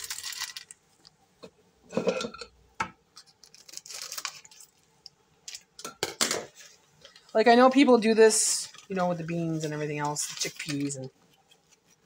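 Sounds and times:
plastic bag crinkling: 0:00.0 - 0:00.8, 0:03.2 - 0:04.9, 0:07.1 - 0:11.2.

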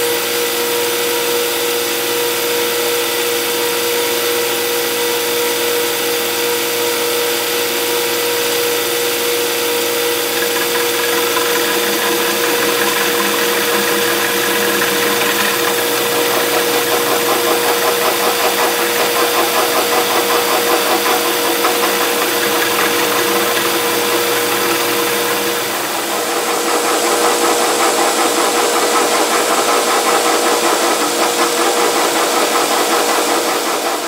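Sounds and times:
milling machine motor whine: 0:09.9 - 0:28.8
milling cutter rattling: 0:10.2 - 0:27.1.

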